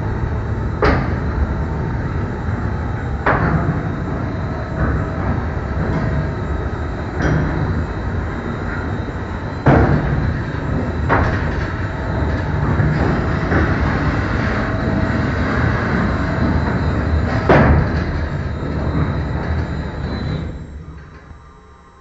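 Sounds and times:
machinery humming and rumbling: 0:00.0 - 0:22.0.

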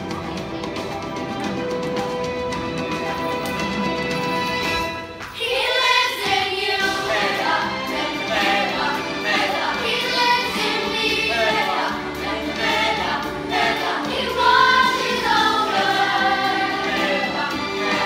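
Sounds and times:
children singing in chorus: 0:05.4 - 0:18.0.

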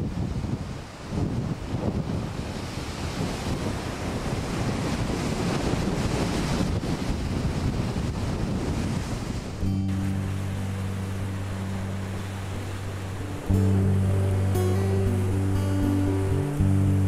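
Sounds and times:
wind buffeting microphone: 0:00.0 - 0:17.0
surf breaking over rocks: 0:02.3 - 0:17.0
sustained music chord: 0:09.6 - 0:17.0.

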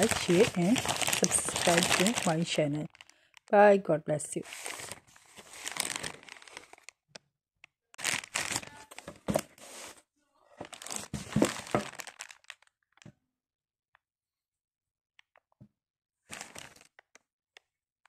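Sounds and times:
box rustling and crinkling: 0:00.0 - 0:03.1, 0:04.4 - 0:06.9, 0:08.0 - 0:10.0, 0:10.6 - 0:12.6, 0:16.3 - 0:16.9.

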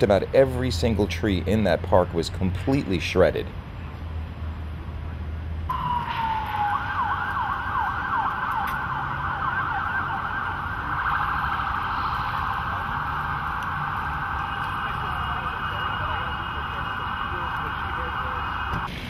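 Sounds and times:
emergency vehicle siren: 0:05.7 - 0:19.0.

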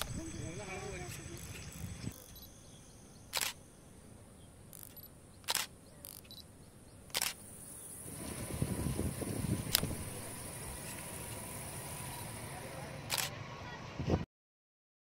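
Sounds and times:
camera shutter clicks: 0:03.3 - 0:03.6, 0:04.8 - 0:06.4, 0:07.1 - 0:07.4, 0:09.7 - 0:10.0, 0:13.1 - 0:13.3.

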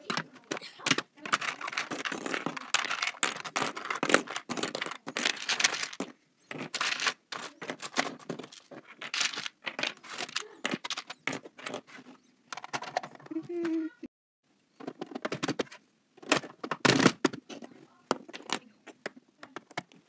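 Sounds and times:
plastic pieces clattering: 0:00.0 - 0:11.9, 0:14.8 - 0:18.7.

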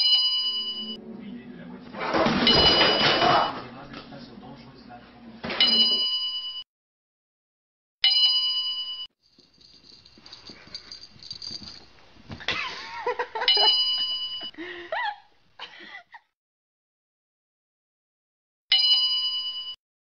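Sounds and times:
bright bell chime: 0:00.0 - 0:01.0, 0:13.5 - 0:14.5
scuffling: 0:09.4 - 0:12.5.

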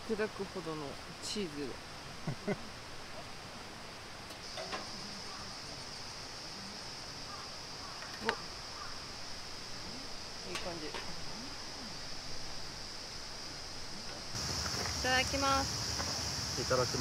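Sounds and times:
stream hissing: 0:00.0 - 0:17.0
high-pitched insect drone: 0:04.4 - 0:17.0.

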